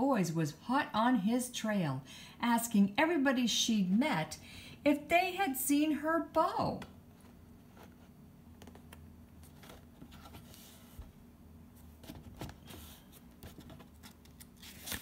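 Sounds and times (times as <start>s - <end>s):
low steady hum: 0.0s - 15.0s
paper book rustling: 7.2s - 11.1s, 11.8s - 15.0s.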